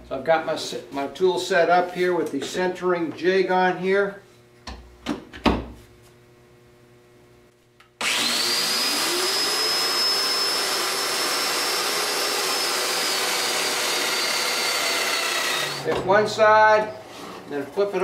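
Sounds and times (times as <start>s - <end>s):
joiner motor whining: 8.0s - 17.6s
dust extractor running: 8.0s - 18.0s.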